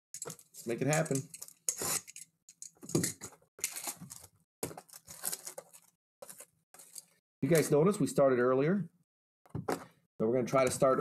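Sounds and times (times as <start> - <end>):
foil packs crinkling and tearing: 3.6 - 7.8.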